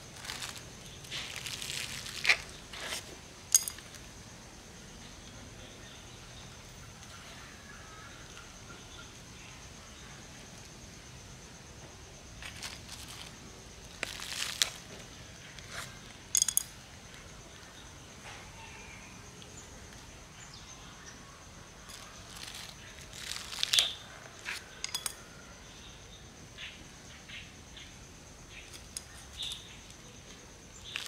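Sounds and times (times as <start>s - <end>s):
plastic bag and soil crinkling: 0.0s - 3.1s, 12.4s - 16.0s, 21.9s - 24.6s, 30.7s - 31.0s.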